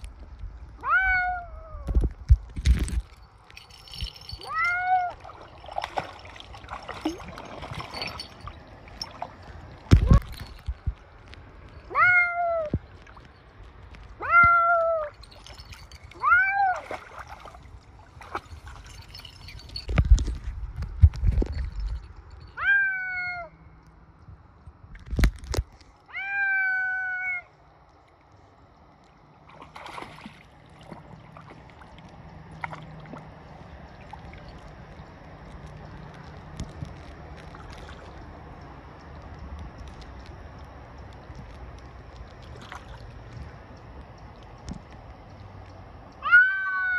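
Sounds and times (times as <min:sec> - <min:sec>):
cat meowing: 0:00.8 - 0:01.9, 0:11.9 - 0:12.7, 0:26.1 - 0:27.5, 0:46.2 - 0:46.9.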